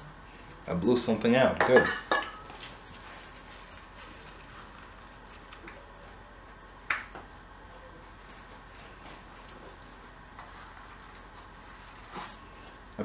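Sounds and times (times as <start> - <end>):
faint handling noises: 2.4 - 6.6.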